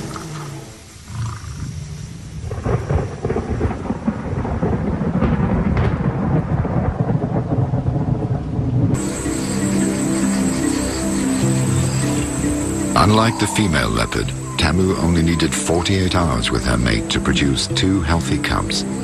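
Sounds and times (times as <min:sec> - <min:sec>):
rain-like hiss: 0:00.0 - 0:19.0
music: 0:09.0 - 0:19.0.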